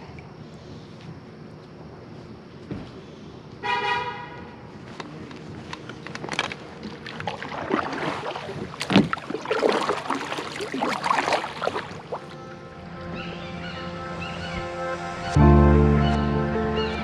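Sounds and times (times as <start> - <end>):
kayak hull knocks and scrapes: 5.7 - 12.3.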